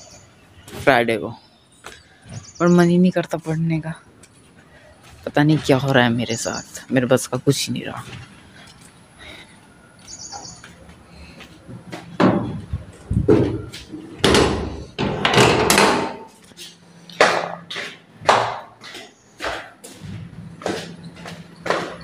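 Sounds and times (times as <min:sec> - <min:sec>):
high bird chirp: 0:00.0 - 0:00.7, 0:01.3 - 0:03.1, 0:06.2 - 0:06.9, 0:10.0 - 0:10.7
loud knocks and thuds: 0:12.2 - 0:16.2.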